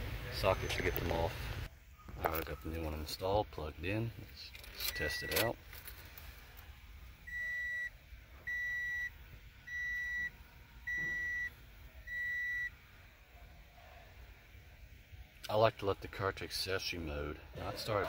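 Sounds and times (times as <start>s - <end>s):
car warning chime beeping: 4.8s - 5.6s, 7.3s - 7.9s, 8.5s - 11.5s, 12.1s - 12.7s.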